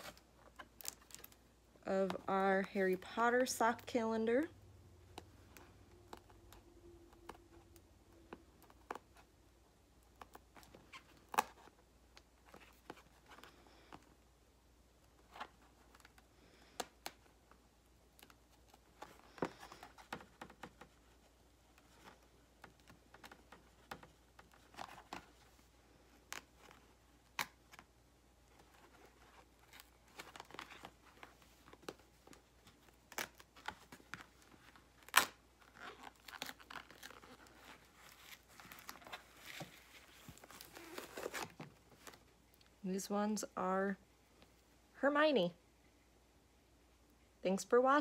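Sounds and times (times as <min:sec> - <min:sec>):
packaging tearing and rustling: 0:28.6 - 0:42.2.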